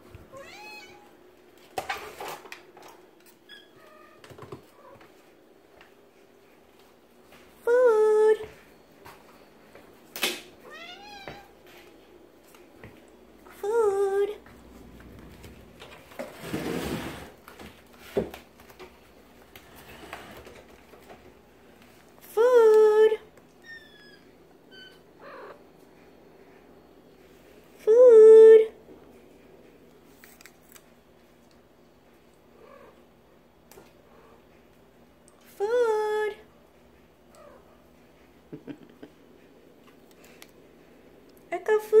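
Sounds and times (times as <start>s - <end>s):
rustling shuffle: 14.4s - 22.2s.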